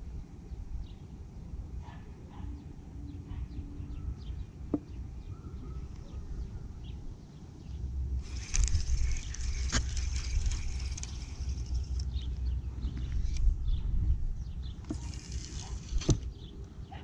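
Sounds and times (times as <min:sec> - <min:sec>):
steady low rumble: 0:04.4 - 0:16.6.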